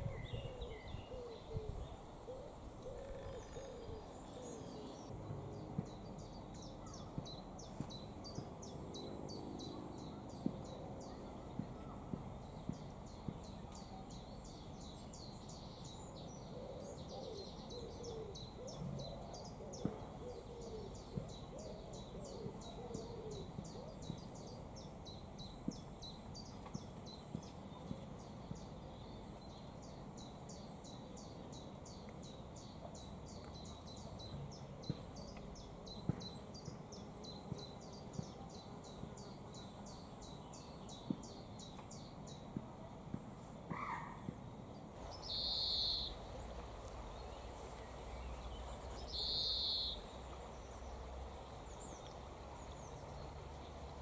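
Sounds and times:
faint clicks: 52.0s - 52.2s.

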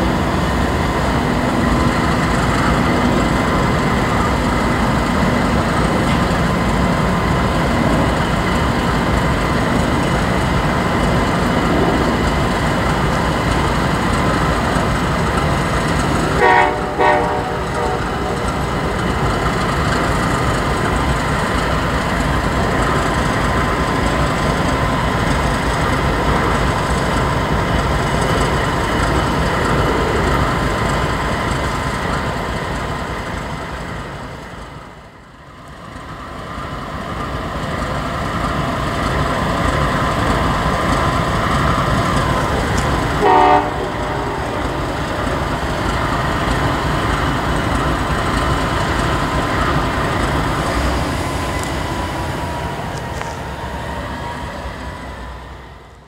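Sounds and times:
diesel locomotives rumbling: 0.0s - 56.0s
locomotive horn toot: 16.3s - 18.4s, 43.2s - 44.8s.

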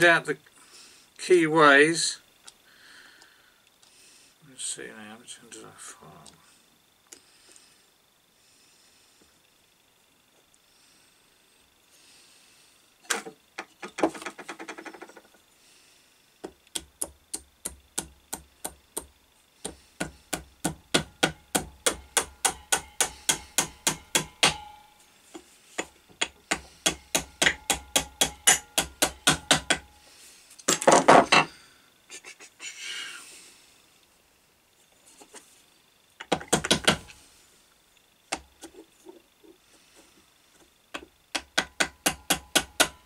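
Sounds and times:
small hammer tapping metal: 16.4s - 25.0s, 25.8s - 30.0s, 40.9s - 43.0s.

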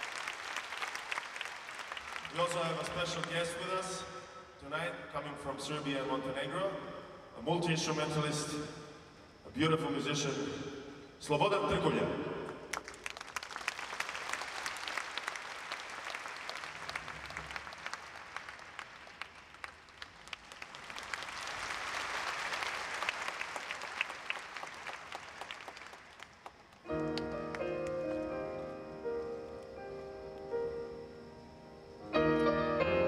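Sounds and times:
large audience applauding: 0.0s - 3.7s, 12.7s - 28.2s.

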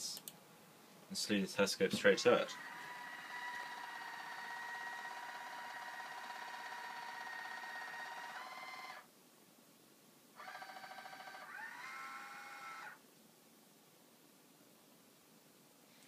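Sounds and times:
telescope motors whining: 2.4s - 9.0s, 10.4s - 13.0s.

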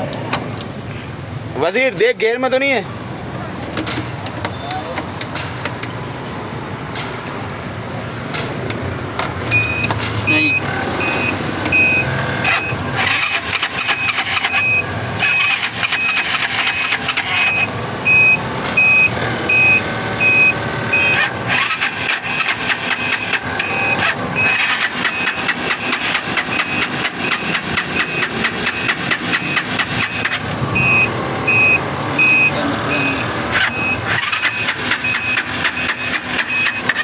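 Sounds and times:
auto rickshaw engine starting: 8.3s - 37.0s
short high electronic beeps: 26.5s - 36.8s.

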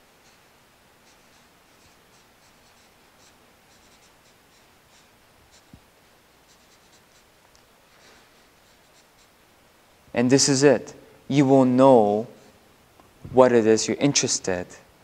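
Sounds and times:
marker writing on paper: 0.0s - 7.3s, 8.4s - 9.4s.

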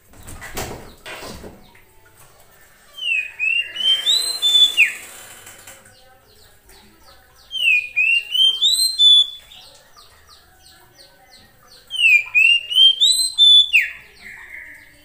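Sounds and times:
bird singing upslurred whistles: 3.0s - 5.0s, 7.5s - 9.6s, 11.9s - 14.1s.

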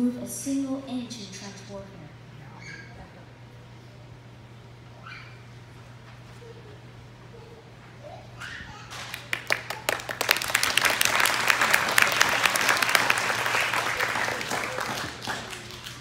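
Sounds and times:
audience applause: 9.1s - 16.0s.

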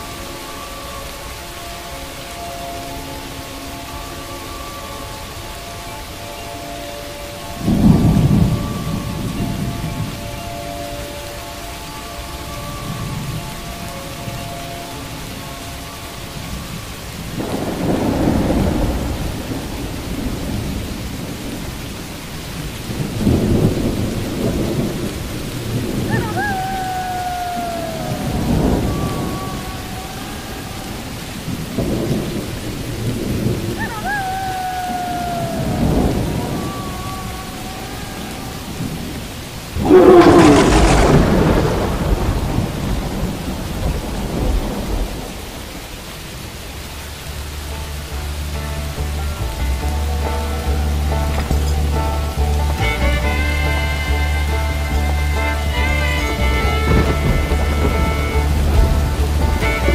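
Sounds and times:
steady rain: 0.0s - 59.9s
thunder rumbling: 0.0s - 59.9s
sharp thunderclap: 17.4s - 21.6s, 39.8s - 45.8s, 56.5s - 59.9s
falling tone: 39.8s - 42.5s.

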